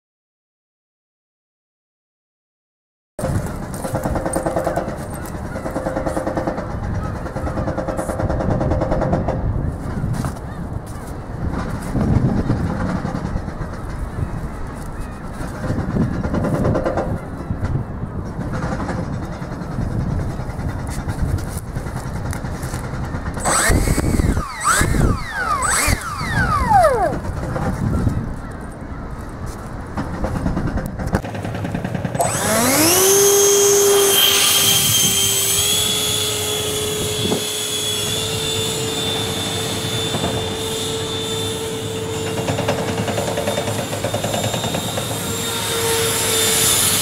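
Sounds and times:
wind buffeting microphone: 0:03.2 - 0:41.2
electric ducted fan buzzing: 0:23.4 - 0:27.8, 0:32.0 - 0:44.0.

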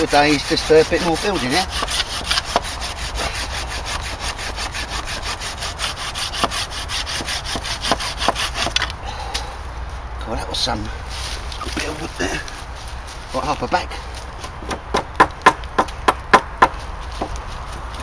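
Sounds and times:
pruning saw cutting wood: 0:00.0 - 0:08.9.

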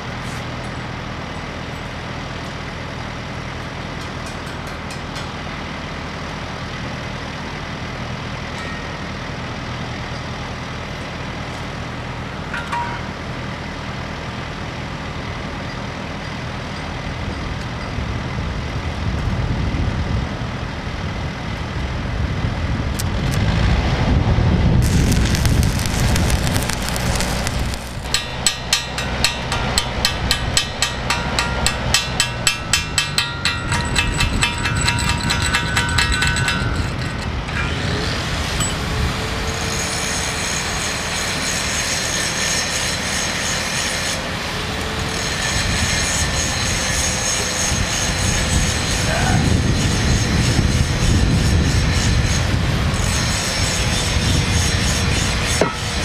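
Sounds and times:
engine running: 0:00.0 - 0:41.7
loud hiss: 0:24.8 - 0:30.9
sharp metal hammer strikes: 0:25.8 - 0:37.8, 0:55.6 - 0:56.0.

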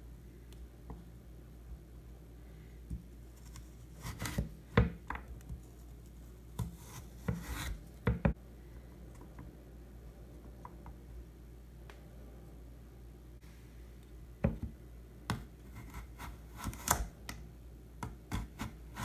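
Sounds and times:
knife scraping on board: 0:03.4 - 0:04.5, 0:06.6 - 0:07.8.

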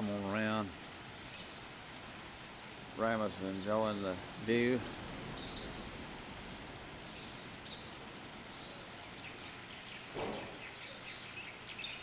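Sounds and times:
steady hiss: 0:00.0 - 0:12.0
brief thump: 0:10.1 - 0:10.6.

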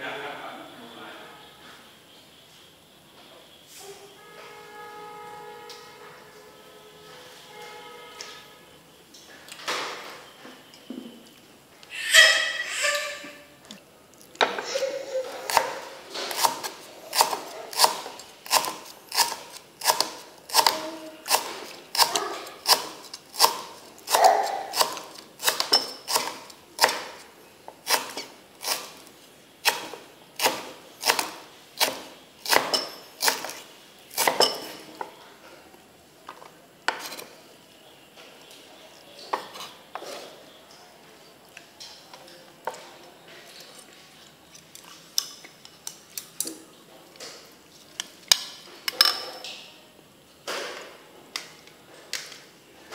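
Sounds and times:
knife chopping on wooden board: 0:15.5 - 0:27.2, 0:27.8 - 0:29.0, 0:29.6 - 0:34.8.

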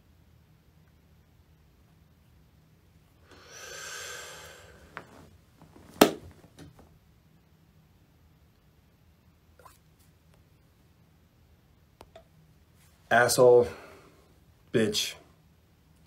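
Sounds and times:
breathy exhale: 0:03.2 - 0:05.1, 0:13.7 - 0:14.3.

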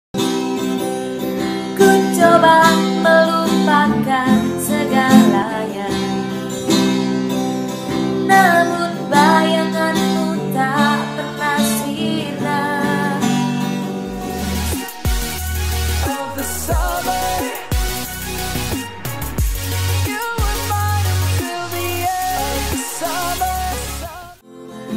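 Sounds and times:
strummed acoustic guitar: 0:00.2 - 0:24.9
woman singing: 0:01.8 - 0:06.3, 0:08.3 - 0:14.2, 0:16.1 - 0:17.9, 0:20.1 - 0:24.4.

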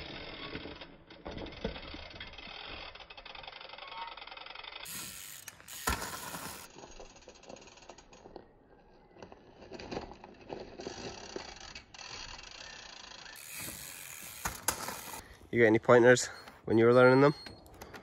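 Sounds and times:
bicycle freewheel hub clicking: 0:00.0 - 0:08.4, 0:10.7 - 0:15.2.

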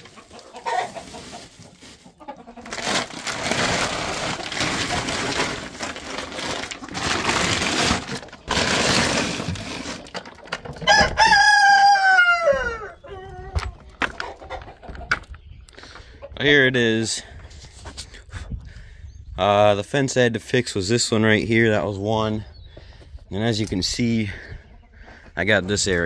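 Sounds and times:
plastic bags rustling: 0:00.0 - 0:10.6
rooster crowing: 0:10.8 - 0:13.3.

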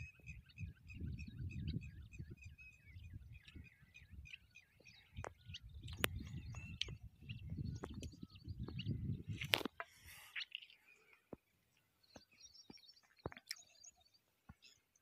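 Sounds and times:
wind on microphone: 0:00.0 - 0:04.4, 0:05.0 - 0:09.8
small birds chirping: 0:00.0 - 0:15.0.

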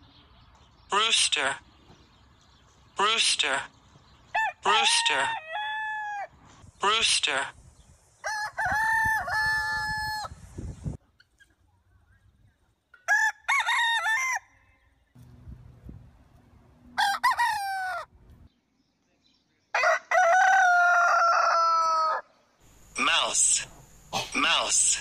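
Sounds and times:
roosters crowing: 0:04.2 - 0:06.6, 0:08.2 - 0:10.5, 0:13.0 - 0:15.0, 0:16.8 - 0:18.5, 0:19.8 - 0:23.6.

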